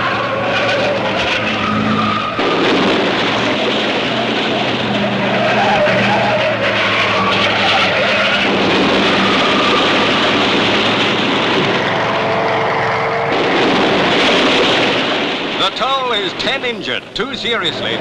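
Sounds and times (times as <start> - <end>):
race car engines: 0.0 - 18.0
tyres skidding: 0.0 - 18.0.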